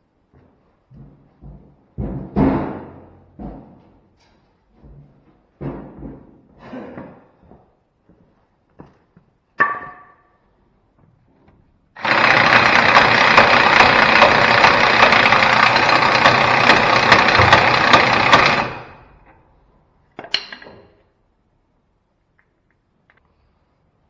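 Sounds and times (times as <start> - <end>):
impact wrench hammering: 12.0 - 19.3.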